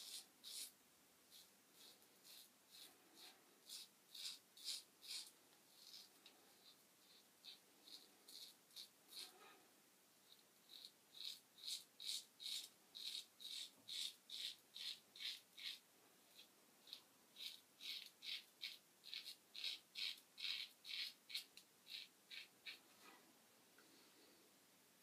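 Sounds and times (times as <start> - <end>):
razor scraping stubble: 1.3 - 9.4, 10.3 - 22.8.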